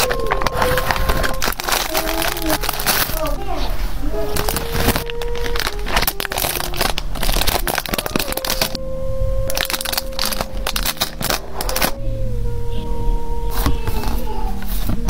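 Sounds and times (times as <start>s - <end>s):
plastic packaging crinkling: 0.0s - 8.8s, 9.5s - 12.0s
steady held tone: 0.0s - 15.0s.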